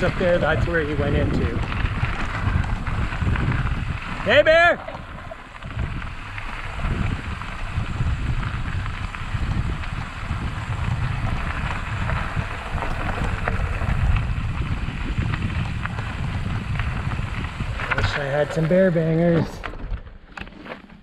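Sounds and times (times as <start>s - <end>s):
wind buffeting microphone: 0.0s - 20.1s
bicycle tyres rolling on gravel: 0.0s - 20.7s
stones clicking: 11.7s - 14.3s.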